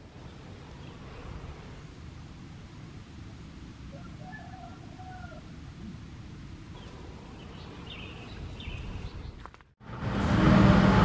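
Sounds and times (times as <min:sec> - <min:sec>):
birds whistling and chirping: 0:06.8 - 0:09.4.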